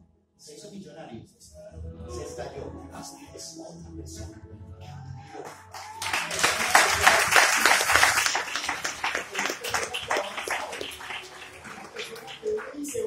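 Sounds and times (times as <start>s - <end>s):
audience applauding: 5.4s - 13.0s.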